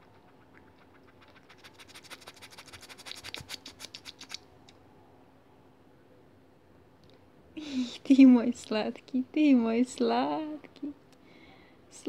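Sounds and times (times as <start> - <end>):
kitten licking fur: 0.0 - 4.5.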